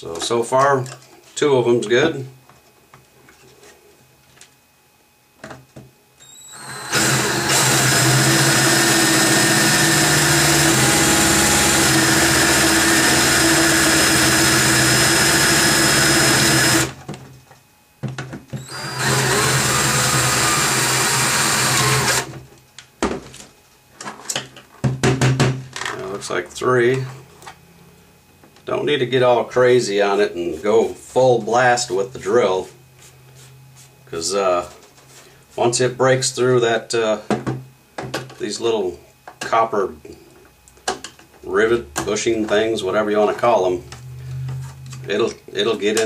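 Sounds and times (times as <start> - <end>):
cordless drill drilling rivet: 6.2 - 17.0, 18.6 - 22.3.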